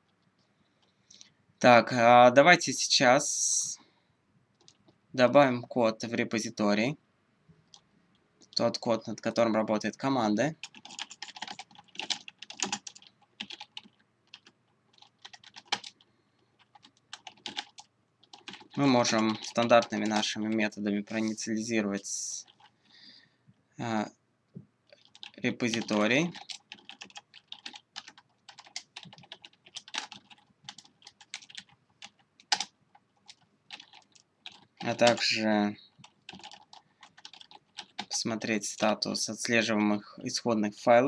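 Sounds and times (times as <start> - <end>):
typing on a computer keyboard: 4.6 - 4.8, 10.6 - 20.6, 22.4 - 22.7, 24.9 - 38.9.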